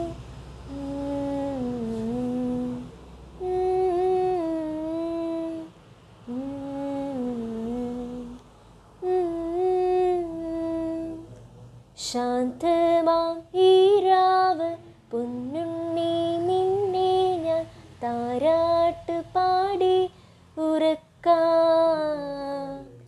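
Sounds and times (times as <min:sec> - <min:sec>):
woman humming a slow melody: 0:00.0 - 0:08.4, 0:09.0 - 0:11.4.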